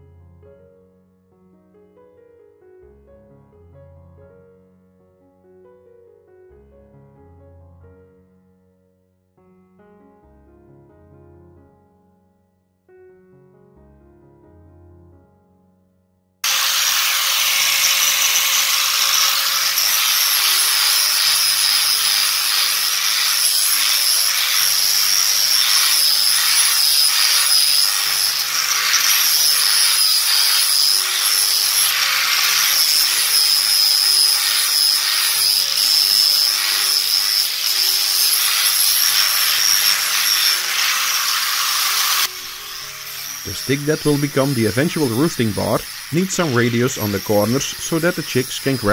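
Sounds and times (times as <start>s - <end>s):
abrasive sanding wood: 16.4s - 48.9s
angle grinder motor whine: 16.4s - 48.9s.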